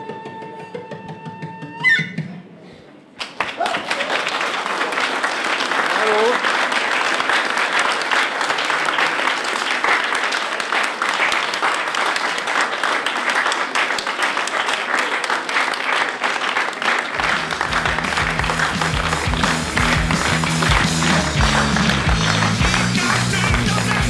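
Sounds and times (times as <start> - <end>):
audience applauding: 3.2 - 24.0
music with bass beat: 17.2 - 24.0.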